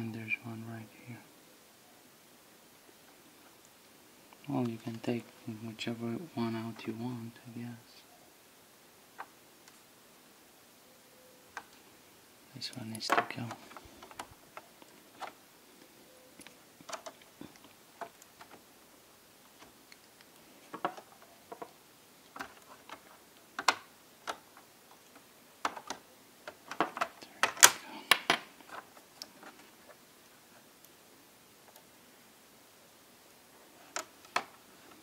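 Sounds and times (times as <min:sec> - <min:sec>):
clicks of plastic and metal parts: 0:25.6 - 0:29.3.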